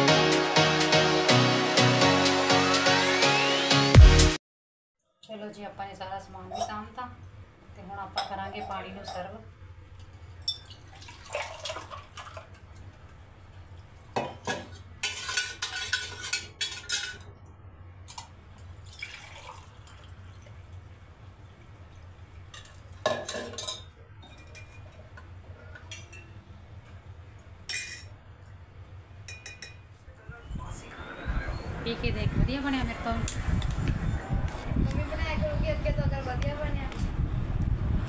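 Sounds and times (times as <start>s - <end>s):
water pouring into metal cups: 10.4s - 12.8s, 18.1s - 20.7s
steel vessels clinking: 22.5s - 25.2s.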